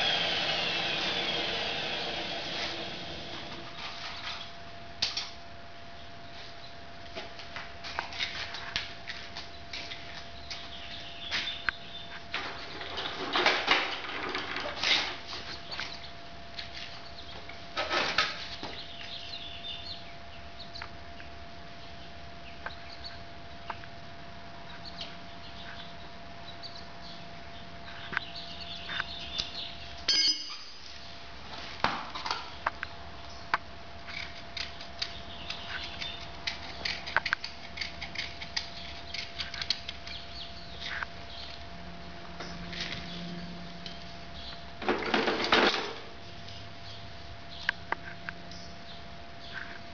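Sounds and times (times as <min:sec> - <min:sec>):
faint steady hum: 0:00.0 - 0:49.9
tools scraping and clicking on hoof: 0:34.1 - 0:41.1.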